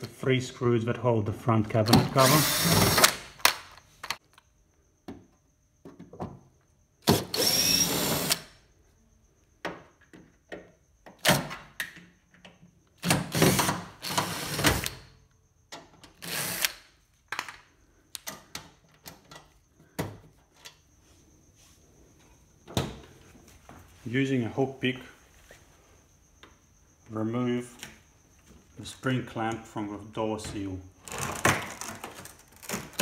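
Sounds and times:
cordless drill running: 2.2 - 3.1, 7.1 - 8.4.

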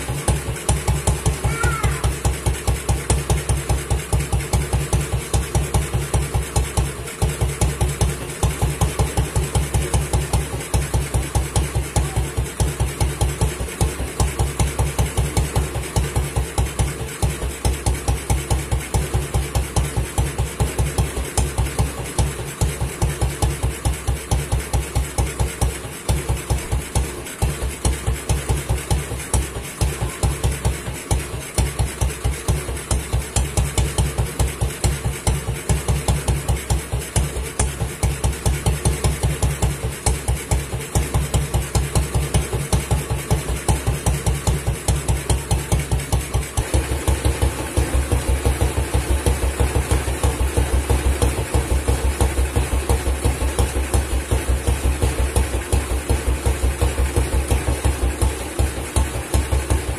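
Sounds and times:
motorcycle engine idling: 0.0 - 59.9.

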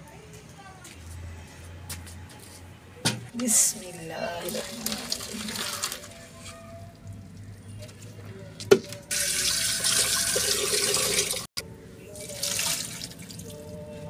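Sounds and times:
water pouring through colander: 4.3 - 8.2, 9.1 - 11.5, 12.2 - 13.6.

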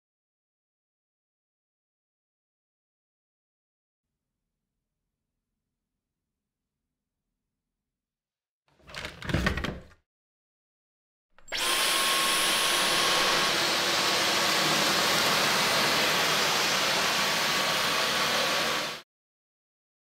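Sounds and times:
vacuum cleaner running: 11.4 - 19.0.

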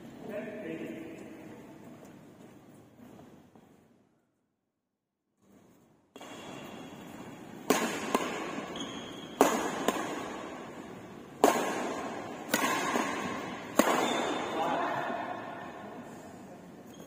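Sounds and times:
racket hitting shuttlecock: 6.1 - 16.0.

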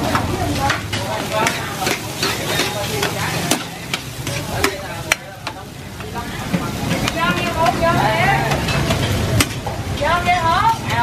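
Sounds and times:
frying sizzle: 0.0 - 11.0
metal ladle scraping a wok: 0.6 - 4.9.

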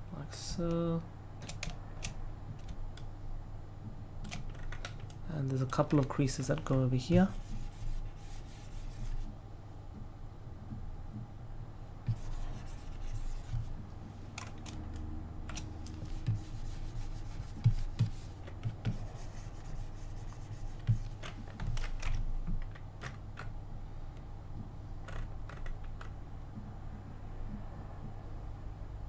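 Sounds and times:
keyboard and mouse clicking: 1.4 - 3.1, 4.2 - 6.9, 14.3 - 16.5, 20.8 - 23.6, 25.0 - 26.2.

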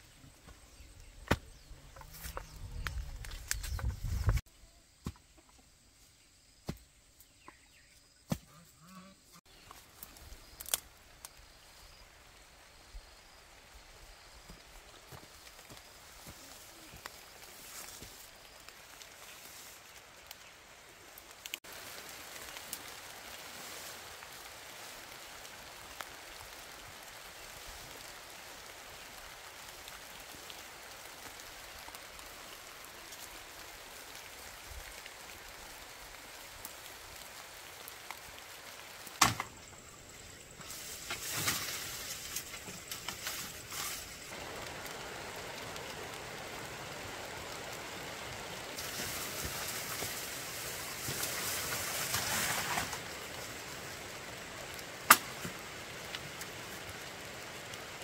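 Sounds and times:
steady outdoor hiss: 0.0 - 58.0
rustling and crackling: 36.4 - 44.9, 48.8 - 53.6.

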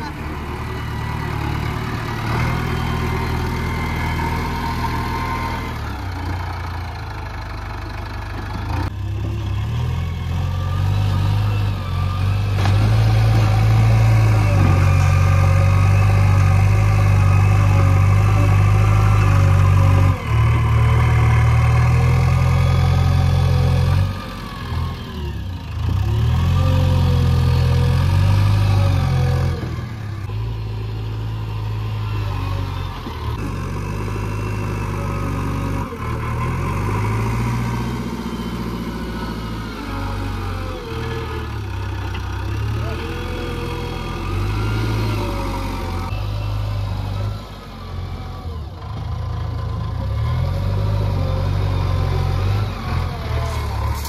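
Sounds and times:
diesel engine revving: 0.0 - 54.0.

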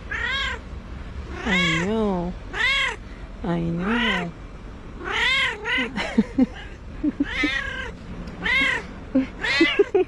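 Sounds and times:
cat chirping: 0.1 - 0.6, 1.3 - 1.9, 5.0 - 9.9
cat meowing: 0.1 - 0.6, 1.3 - 1.9, 2.5 - 3.0, 3.8 - 4.3, 5.0 - 9.9.

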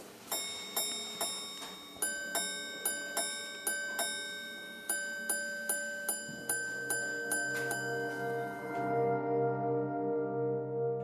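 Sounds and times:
watch chiming on tuned gongs: 0.3 - 9.6.

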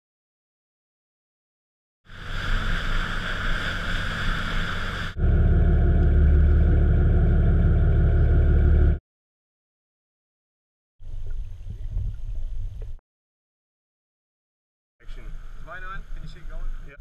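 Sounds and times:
hissy rushing sound: 2.1 - 5.2
boat engine rumbling: 2.1 - 9.0.

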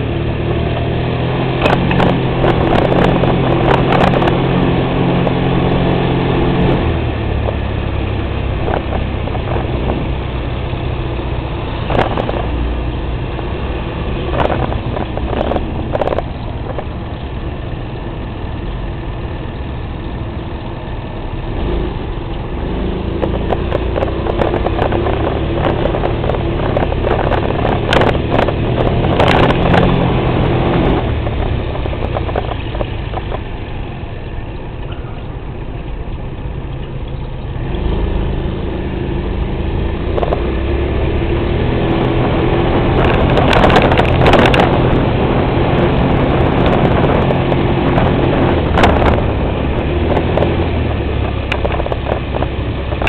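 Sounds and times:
vehicle engine running: 0.0 - 53.0.

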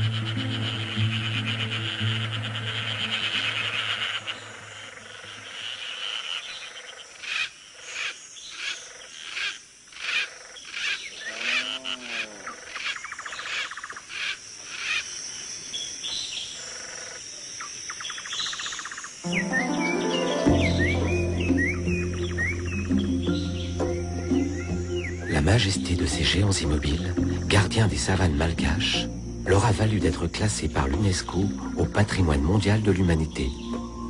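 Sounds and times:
insect whine with buzzing trills: 0.0 - 19.3, 21.2 - 34.0
rising and falling call: 19.2 - 25.3.

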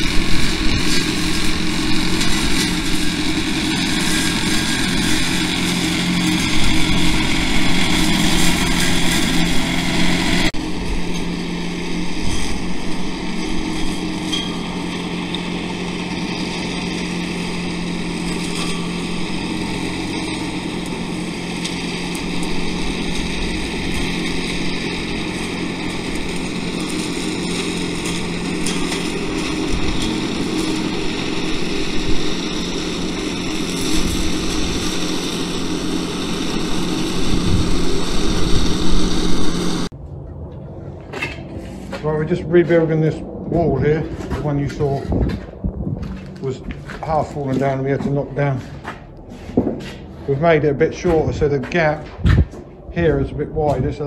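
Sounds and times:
hedge-cutter flail cutting: 0.0 - 39.9
tractor engine running: 0.0 - 54.0.

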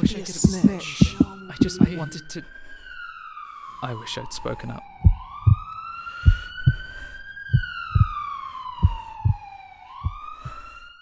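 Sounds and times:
heartbeat thumps: 0.0 - 2.0, 5.0 - 8.2, 8.8 - 10.6
emergency vehicle siren wailing: 0.0 - 11.0.

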